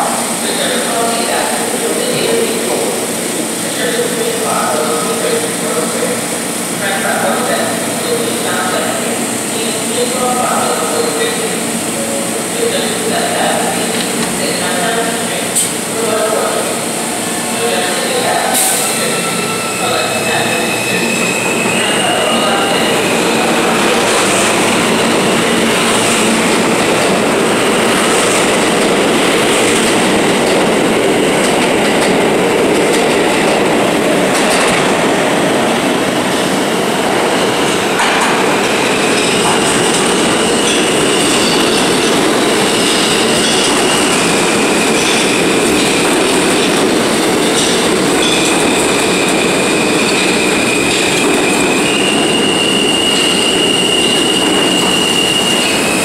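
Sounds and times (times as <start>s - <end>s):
subway train rumbling on rails: 0.0s - 56.0s
high-pitched wheel squeal: 49.1s - 56.0s.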